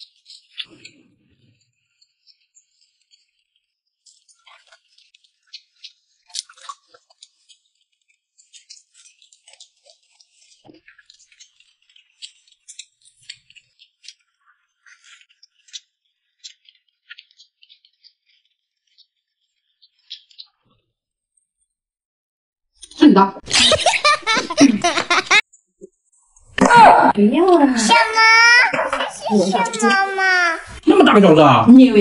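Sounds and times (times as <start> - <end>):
people chewing and smacking: 0.0 - 19.0.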